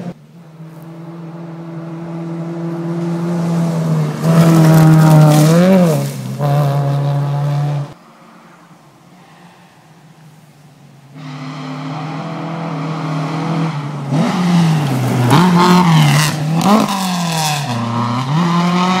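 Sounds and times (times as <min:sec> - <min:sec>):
rally car engine revving: 0:00.0 - 0:08.0, 0:11.2 - 0:19.0
gravel crackling under tyres: 0:00.0 - 0:11.4.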